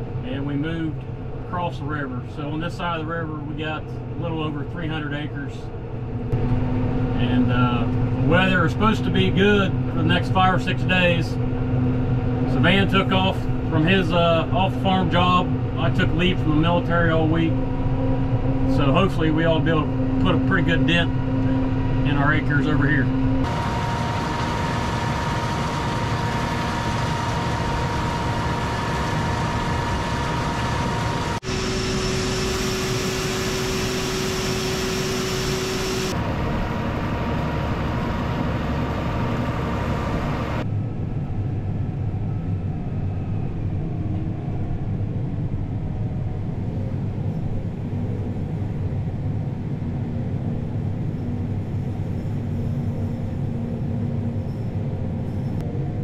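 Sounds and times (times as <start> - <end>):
tractor engine running: 0.0 - 40.7
combine harvester: 0.0 - 42.6.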